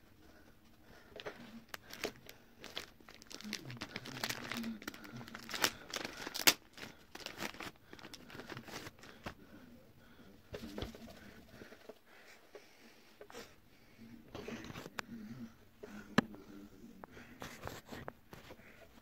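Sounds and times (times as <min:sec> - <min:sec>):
plastic packet crinkling and tearing: 0:01.7 - 0:09.3.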